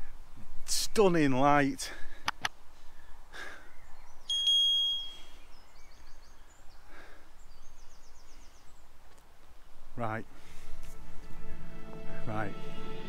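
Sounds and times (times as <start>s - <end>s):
faint outdoor background noise: 0.0s - 13.0s
high bird trills: 3.6s - 9.0s.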